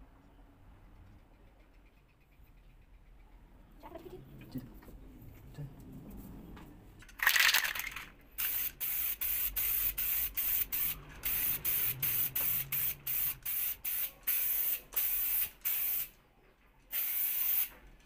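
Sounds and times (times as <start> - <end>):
aerosol spray can hissing: 8.4 - 16.1, 16.9 - 17.7.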